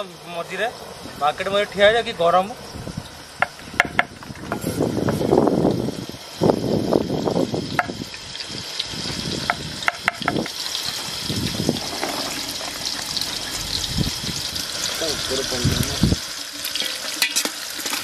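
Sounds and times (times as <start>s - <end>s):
onions sizzling in hot oil: 0.0s - 18.0s
low rumble: 13.0s - 16.2s.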